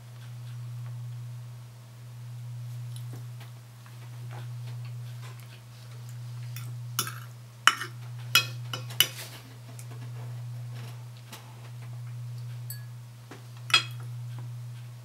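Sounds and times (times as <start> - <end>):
steady low hum: 0.0 - 15.0
cutlery clinking on a plate: 6.6 - 9.3, 12.7 - 12.9, 13.7 - 14.0.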